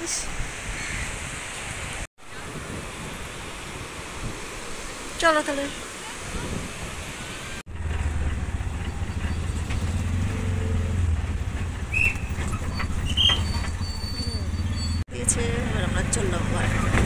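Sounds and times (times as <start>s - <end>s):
surf and wind: 0.0s - 7.7s
road noise: 0.0s - 17.0s
vehicle engine droning: 7.7s - 17.0s.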